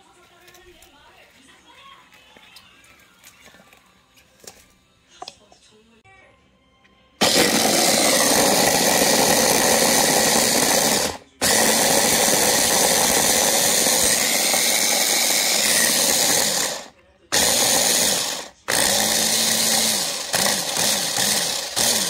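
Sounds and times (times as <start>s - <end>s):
hand blender motor chopping: 7.2s - 22.0s.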